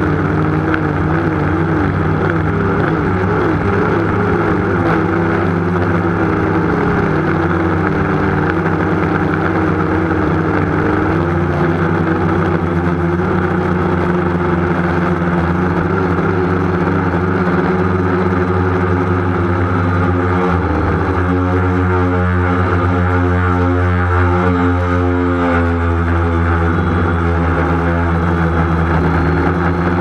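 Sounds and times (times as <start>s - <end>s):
small aircraft motors and propellers: 0.0s - 30.0s.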